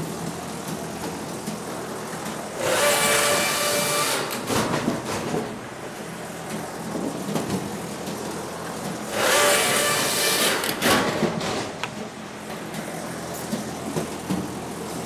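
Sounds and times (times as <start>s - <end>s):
firewood machine running: 0.0s - 15.0s
saw cutting through wood: 2.6s - 4.5s, 9.1s - 11.1s.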